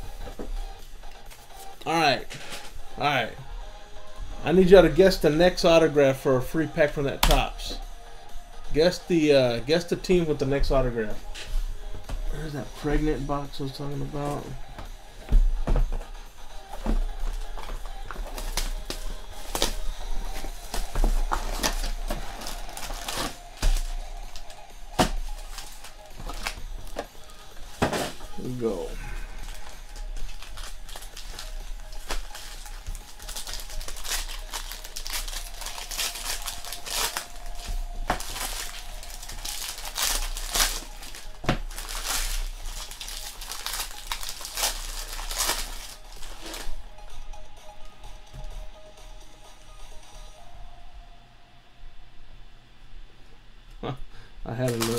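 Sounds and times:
plastic shrink-wrap crinkling: 0:16.6 - 0:46.8, 0:54.6 - 0:54.9.

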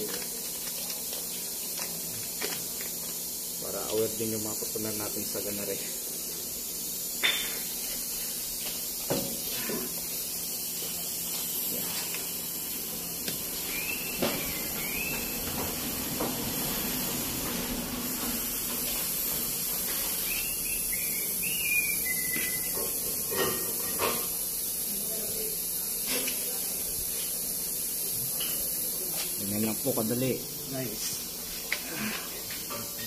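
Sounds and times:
steady hiss: 0:00.0 - 0:33.0
high chirps: 0:13.5 - 0:15.5, 0:19.9 - 0:23.0.

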